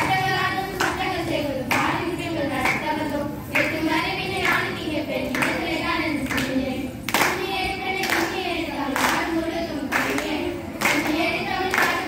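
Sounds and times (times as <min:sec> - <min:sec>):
girls singing together: 0:00.0 - 0:12.0
hands clapping in unison: 0:00.7 - 0:02.0, 0:03.6 - 0:03.8, 0:04.4 - 0:08.4, 0:09.0 - 0:09.3, 0:09.9 - 0:12.0.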